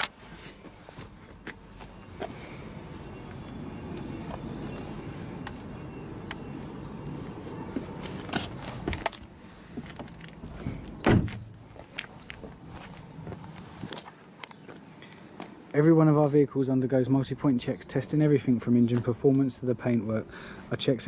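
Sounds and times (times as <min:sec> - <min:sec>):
car door shutting: 0:11.0 - 0:11.5.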